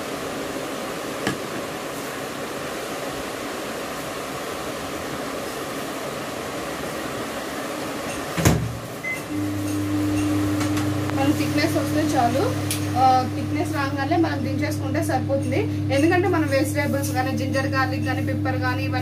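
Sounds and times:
microwave oven humming: 0.0s - 19.0s
microwave door shutting: 8.3s - 9.2s.

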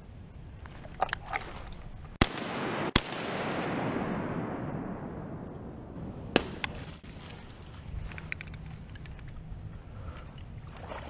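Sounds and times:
shotgun shots echoing: 2.2s - 7.0s
sharp clicks: 8.0s - 10.6s.

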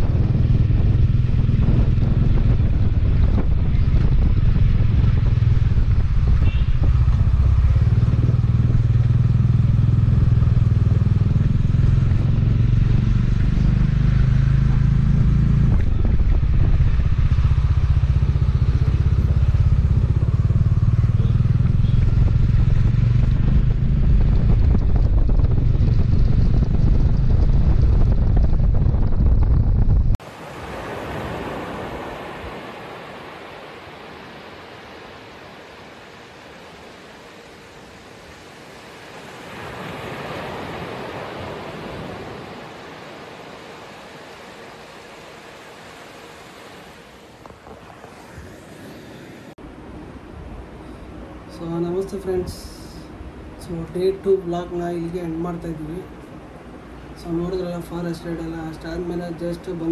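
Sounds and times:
motorcycle engine running: 0.0s - 30.1s
heavy low rumble: 0.0s - 30.2s
small waves breaking on a beach: 30.2s - 59.9s.

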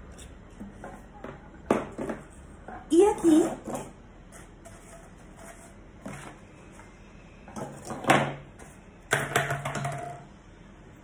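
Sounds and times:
object scraping across table: 3.6s - 8.0s.

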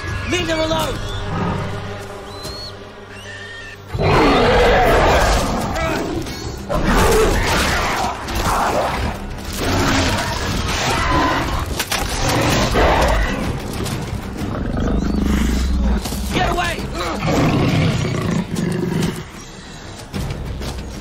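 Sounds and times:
tense background music: 0.0s - 21.0s
big cat growling and snarling: 17.0s - 19.3s.

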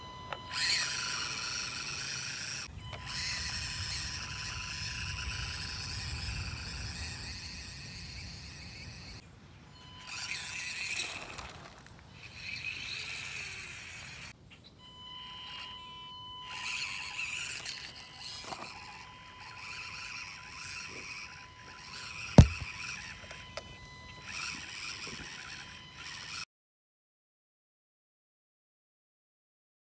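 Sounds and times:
small electric motor whirring: 0.2s - 9.2s, 9.8s - 14.4s, 15.3s - 26.4s
sharp knock: 22.4s - 22.6s.

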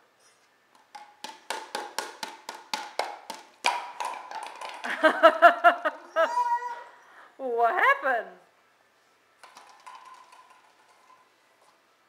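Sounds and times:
plastic toy pins tapping: 0.7s - 5.0s.

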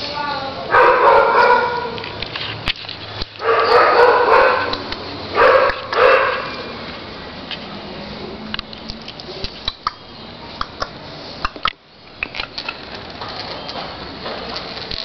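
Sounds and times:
puppy barking and yipping: 0.7s - 2.0s, 3.4s - 4.8s, 5.4s - 6.6s.

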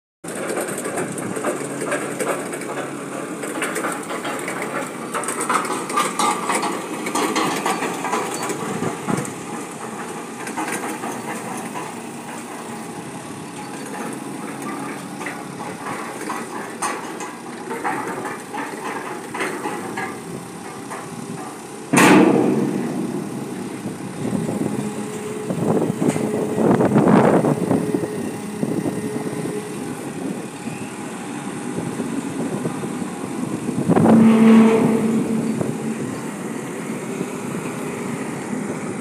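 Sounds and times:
forklift engines running: 0.3s - 39.0s
metal knocks: 22.0s - 25.2s, 34.0s - 36.3s.

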